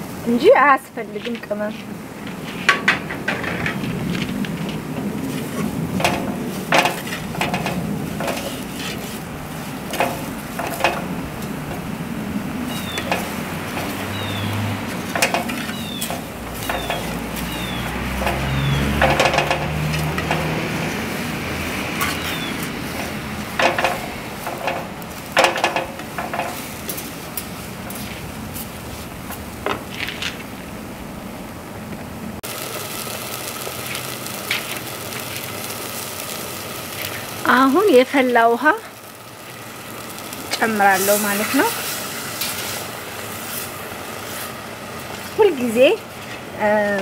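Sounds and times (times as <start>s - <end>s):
onions sizzling in oil: 0.0s - 30.8s, 32.4s - 47.0s
wooden spoon stirring and scraping: 1.2s - 30.4s.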